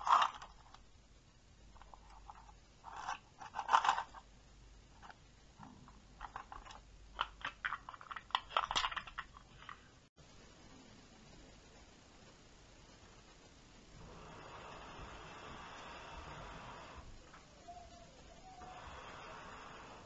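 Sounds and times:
small metal parts rattling in plastic box: 0.0 - 0.8, 1.8 - 4.3, 5.0 - 9.8.

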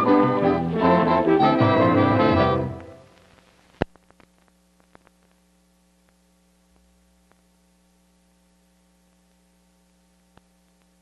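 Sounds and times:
low electrical hum: 0.0 - 11.0
faint crackles: 2.8 - 11.0.

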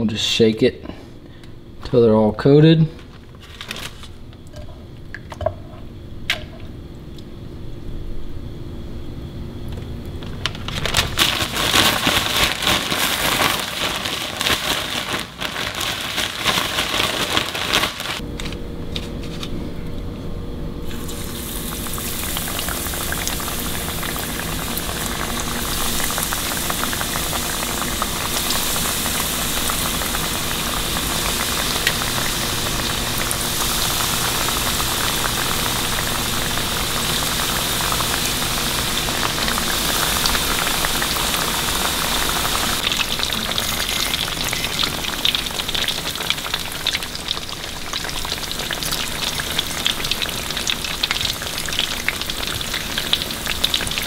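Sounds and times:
plastic bag rustling: 2.9 - 4.2, 10.2 - 19.6
fish frying in hot oil: 10.7 - 18.2, 20.9 - 54.0.

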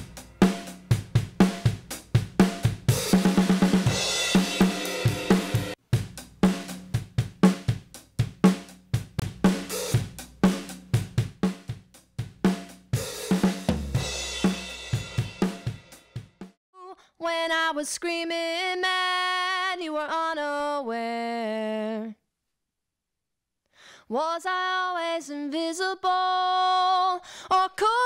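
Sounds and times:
drum kit playing a beat: 0.0 - 16.6.

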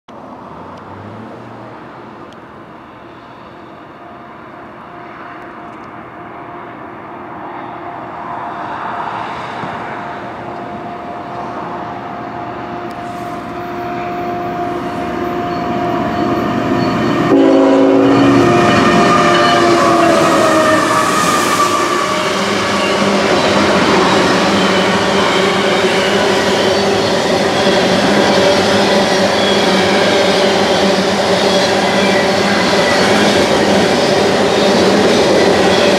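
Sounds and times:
locomotive engine and wheel noise: 0.1 - 35.9
train horn blasts: 11.9 - 31.1.

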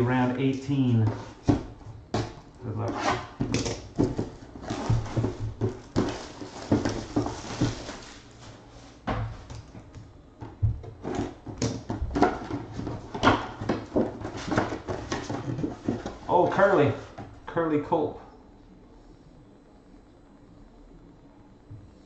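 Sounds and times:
cardboard scraping on table: 2.8 - 3.5, 13.7 - 16.3
packaging rustling: 4.0 - 9.0.

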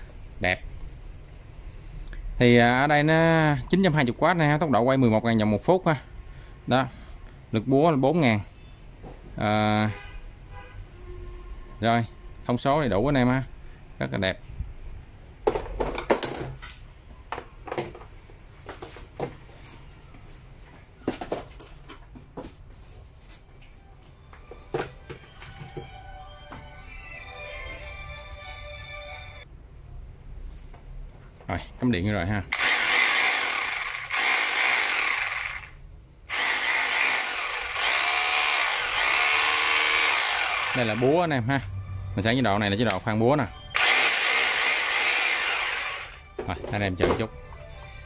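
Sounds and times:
rotary hammer drill motor running: 32.5 - 41.2, 43.8 - 46.2.

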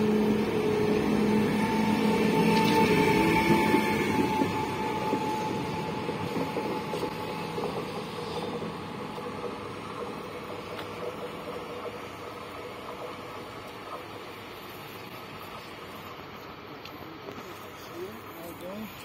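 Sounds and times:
electric train running: 0.0 - 19.0
train whine: 0.0 - 19.0.

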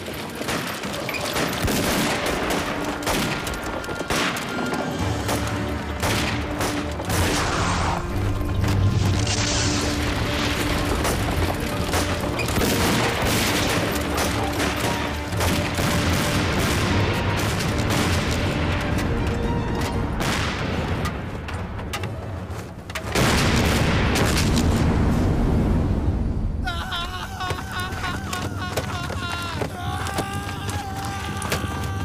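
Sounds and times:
dramatic background music: 0.4 - 32.0
explosion: 23.2 - 26.6.

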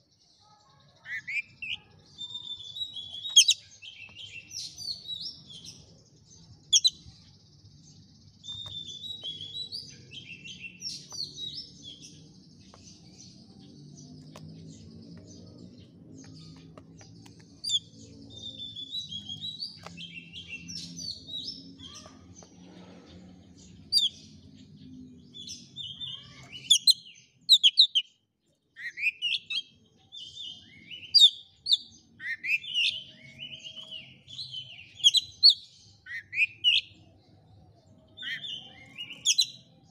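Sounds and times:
bird singing chirps and trills: 0.0 - 39.9.

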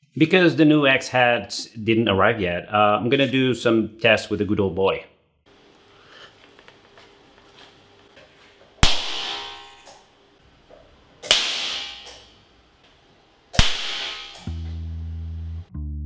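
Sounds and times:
metallic ring: 8.9 - 10.1, 11.4 - 12.4, 13.6 - 14.7.

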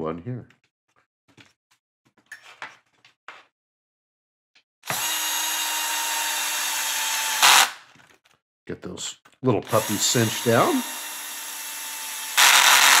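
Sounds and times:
cordless drill motor whine: 4.8 - 7.8, 9.7 - 13.0.

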